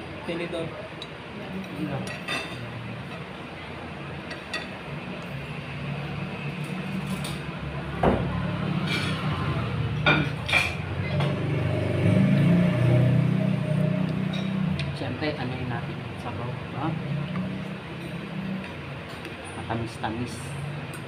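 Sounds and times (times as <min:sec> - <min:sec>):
utensils clinking against a dish: 0:01.0 - 0:03.3, 0:08.8 - 0:09.3, 0:10.0 - 0:11.4, 0:14.2 - 0:14.8.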